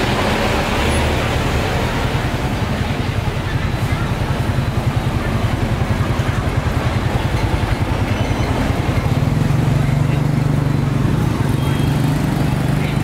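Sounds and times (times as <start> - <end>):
street market noise: 0.0 - 13.0.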